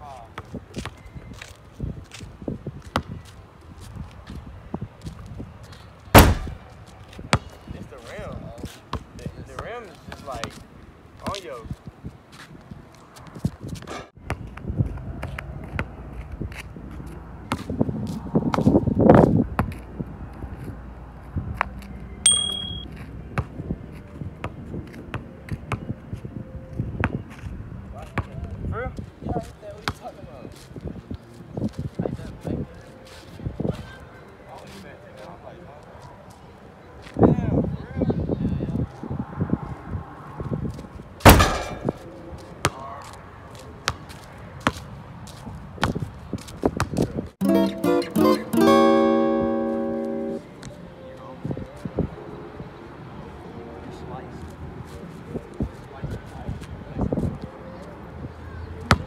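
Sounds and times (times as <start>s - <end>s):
ball clanging off metal hoop rim: 22.3s - 22.8s, 41.3s - 42.0s
acoustic guitar music: 47.4s - 50.5s.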